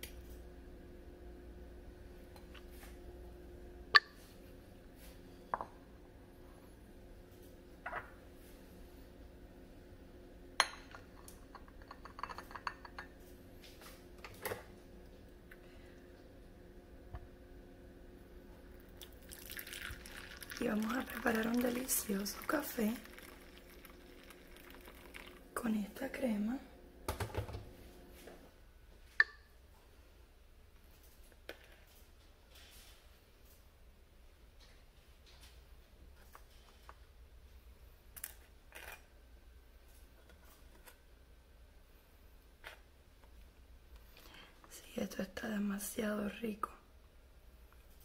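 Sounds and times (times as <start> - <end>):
dishes and cutlery clinking: 10.6 - 13.1.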